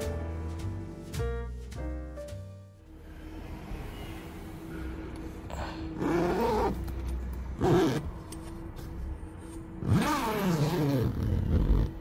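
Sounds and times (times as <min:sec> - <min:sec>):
zipper being pulled: 0:06.0 - 0:06.9, 0:07.6 - 0:08.1, 0:09.8 - 0:12.0.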